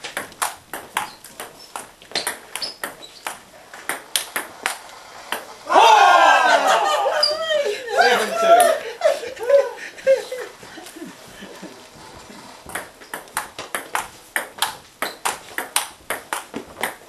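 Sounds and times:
ping-pong ball clicks: 0.0 - 5.5, 12.6 - 17.0.

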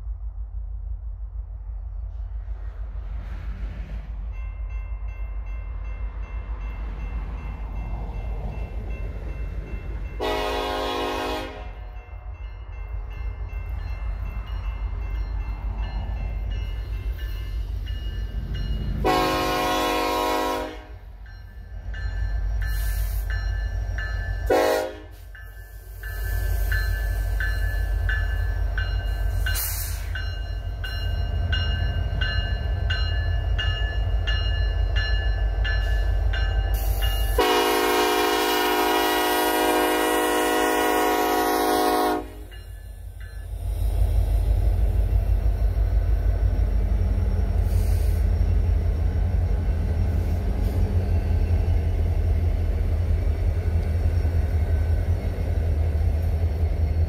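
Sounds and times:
diesel locomotives rumbling: 0.0 - 57.0
train horn blasts: 10.2 - 12.0, 19.0 - 21.1, 24.4 - 25.3, 37.3 - 42.6.

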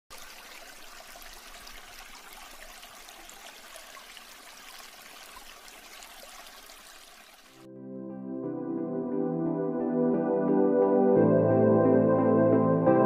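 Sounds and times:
water rushing: 0.1 - 7.7.

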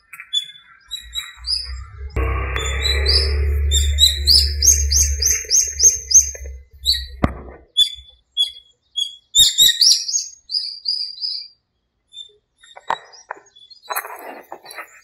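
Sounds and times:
small songbirds chirping: 0.0 - 15.0
low hum: 1.0 - 8.0.

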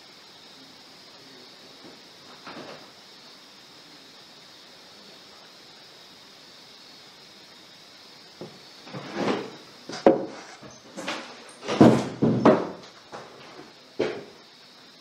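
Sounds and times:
chair knocks and scrapes: 8.4 - 12.9
footsteps: 8.4 - 14.3.

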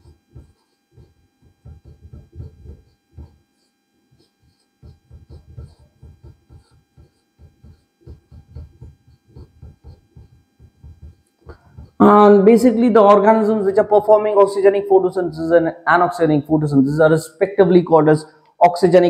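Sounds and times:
marker writing on whiteboard: 0.0 - 12.1
faint electrical hum: 0.0 - 19.0.

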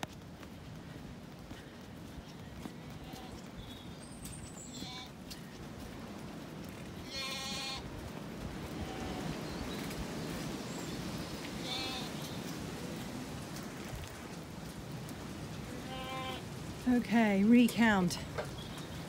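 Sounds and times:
sheep bleating: 2.7 - 3.9, 4.7 - 5.1, 7.0 - 7.8, 8.8 - 9.4, 11.6 - 12.1, 15.7 - 16.4.

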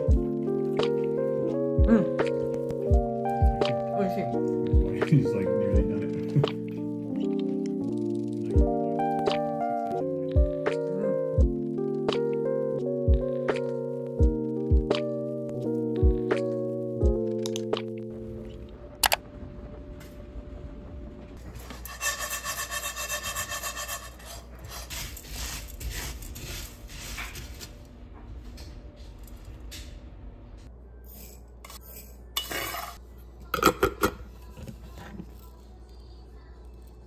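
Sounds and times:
spatula scraping grains in pan: 21.6 - 27.7.

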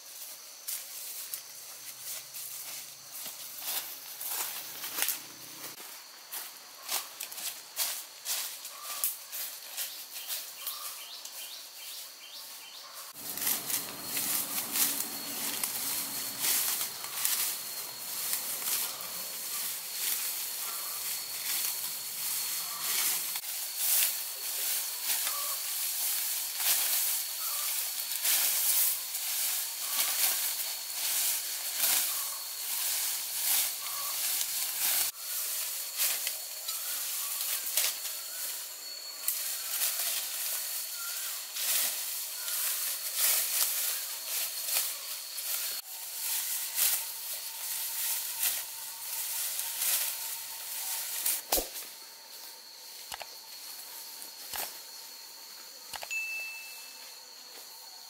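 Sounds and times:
grass rustling and being cut: 0.0 - 55.1
faint high-pitched tone: 56.0 - 57.7.

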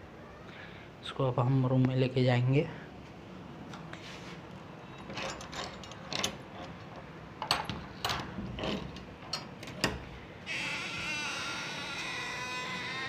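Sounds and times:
padlock and key rattling: 4.9 - 10.0.

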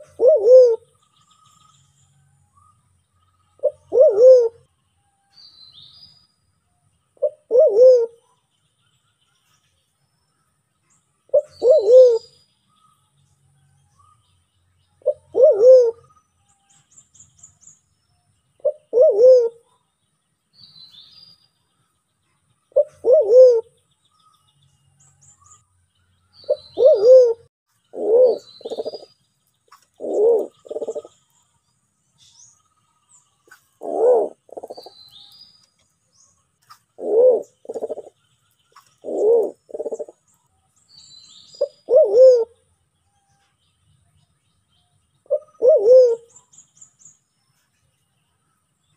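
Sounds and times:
pigeon hooting coos: 0.0 - 0.9, 3.6 - 4.7, 7.2 - 8.2, 11.3 - 12.3, 15.0 - 16.1, 18.6 - 19.6, 22.8 - 23.7, 26.5 - 29.1, 30.0 - 31.1, 33.8 - 34.9, 37.0 - 38.1, 39.0 - 40.2, 41.6 - 42.6, 45.3 - 46.3
small birds chirping: 0.0 - 48.9.

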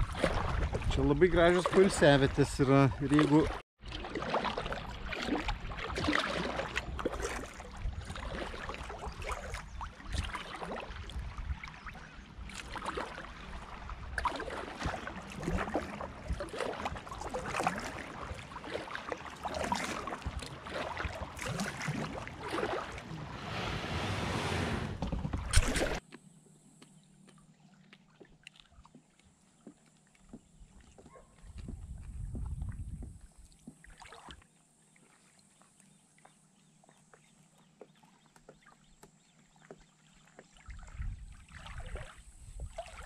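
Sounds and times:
wind rumble on microphone: 0.0 - 1.5, 6.9 - 12.6, 31.2 - 33.5, 40.7 - 43.0
paddle water splashing: 0.0 - 26.0, 27.1 - 43.0.

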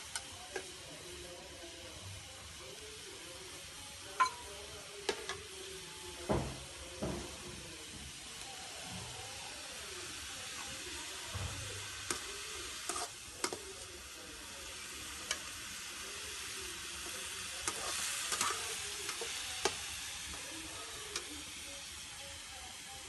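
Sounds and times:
onions sizzling in oil: 0.0 - 23.0
metal ladle clinking against pan: 4.2 - 4.5.

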